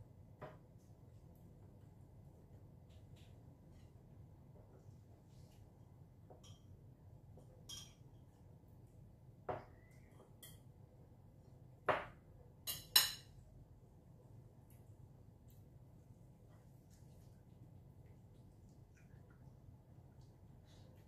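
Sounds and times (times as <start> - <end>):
cutlery clinking on ceramic plate: 7.6 - 8.2, 11.9 - 13.4.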